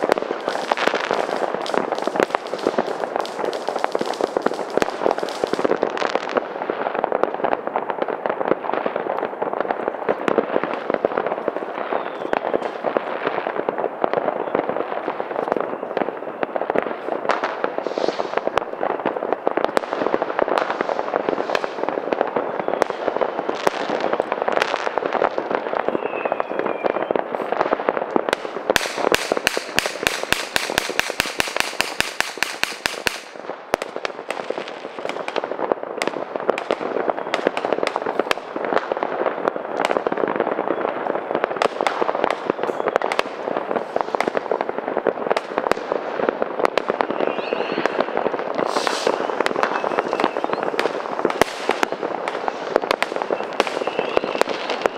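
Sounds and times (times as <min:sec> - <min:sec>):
rapid run of cracks: 0:00.0 - 0:07.4
fireworks banging and crackling: 0:00.0 - 0:54.9.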